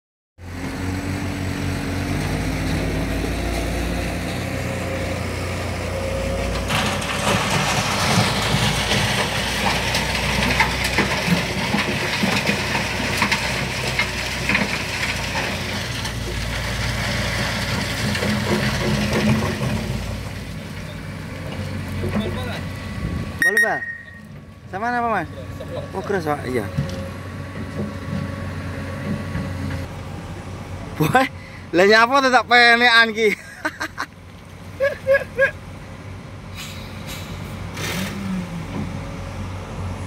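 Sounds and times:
diesel machinery engine hum: 0.4s - 40.0s
rough crunching and rattling: 6.4s - 22.6s.

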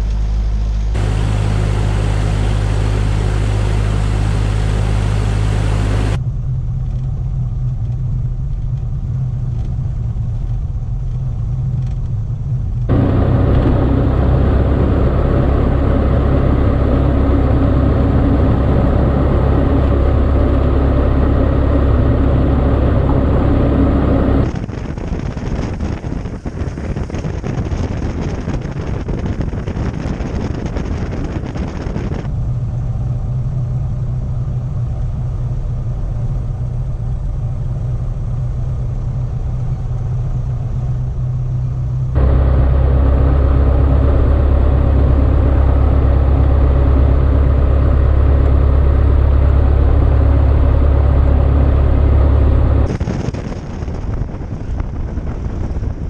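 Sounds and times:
aircraft piston engine droning: 0.0s - 6.2s, 12.9s - 24.5s, 32.3s - 56.0s.

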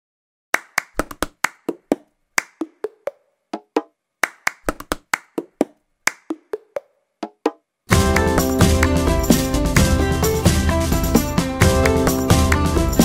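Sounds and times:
hand claps: 0.5s - 9.1s, 11.6s - 13.0s.

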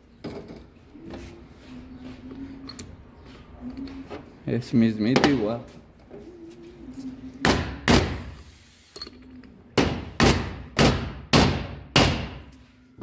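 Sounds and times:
hammer striking metal: 9.8s - 12.5s.

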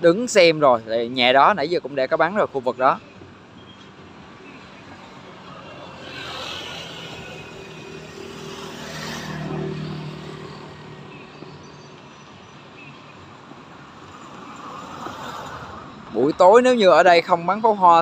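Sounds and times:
motor vehicle passing by: 4.9s - 12.0s, 13.4s - 16.2s.

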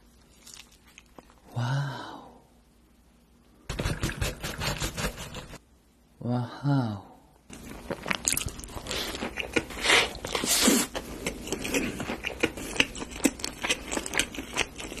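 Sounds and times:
crunching and chewing of fried chicken: 0.2s - 1.4s, 7.6s - 15.0s.

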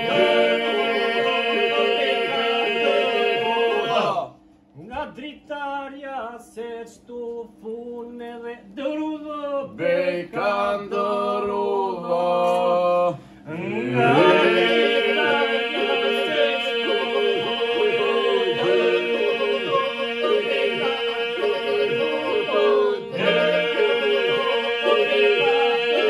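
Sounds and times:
men singing over a drone: 0.0s - 4.3s, 9.7s - 26.0s.

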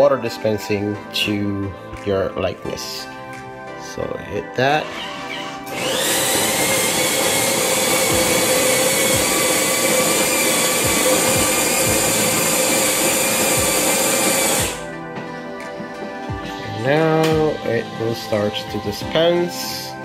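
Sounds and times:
coffee grinder grinding beans: 5.7s - 14.8s.

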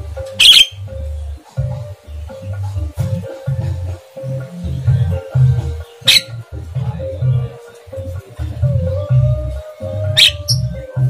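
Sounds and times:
background music: 0.0s - 11.0s
bird harsh squawk: 0.4s - 0.8s, 6.0s - 6.4s, 10.2s - 10.6s.

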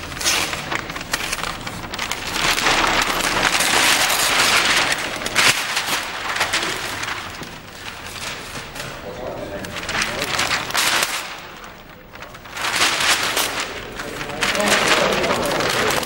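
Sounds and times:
paper tearing: 0.0s - 16.0s.

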